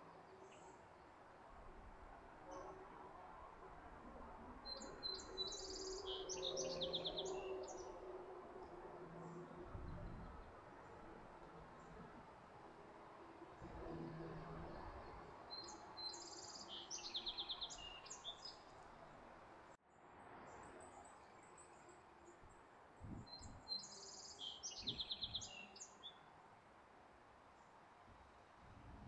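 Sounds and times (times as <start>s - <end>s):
songbird singing: 0.0s - 1.2s, 4.4s - 12.2s, 13.7s - 19.2s, 20.4s - 26.3s.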